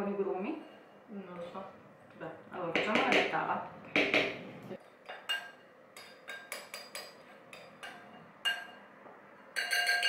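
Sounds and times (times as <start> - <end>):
spoon tapping on bowl: 9.6 - 10.0.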